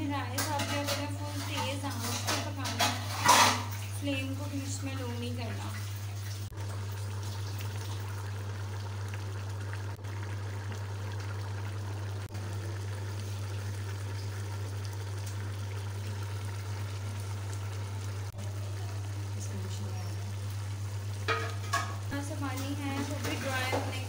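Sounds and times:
rice boiling in a metal pot: 0.0s - 24.0s.

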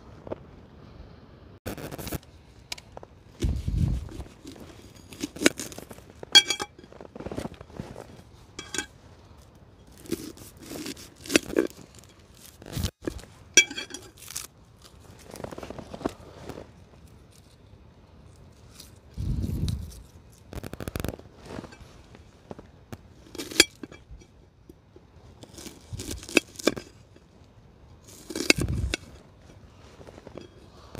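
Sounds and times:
scraping and tearing food: 3.4s - 6.3s, 9.3s - 23.9s, 25.3s - 27.2s, 28.0s - 30.9s.

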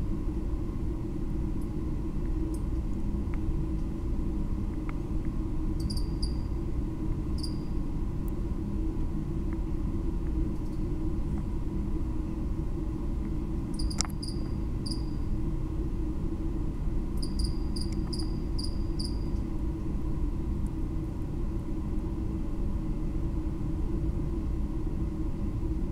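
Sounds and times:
cricket chirping: 5.8s - 6.5s, 7.4s - 7.8s, 13.7s - 15.2s, 17.2s - 19.3s
sharp click: 13.8s - 14.5s.

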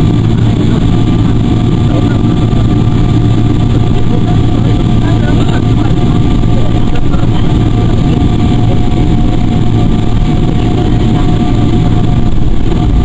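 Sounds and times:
jet engines whining: 0.0s - 13.0s
wheels rumbling on taxiway: 0.0s - 13.0s.

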